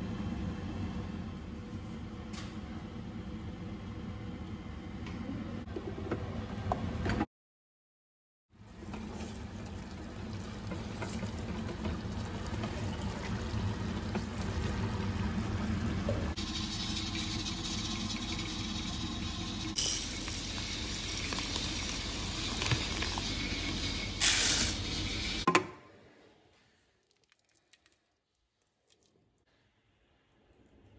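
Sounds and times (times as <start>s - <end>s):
stew simmering and bubbling: 8.5s - 25.5s, 26.6s - 29.5s.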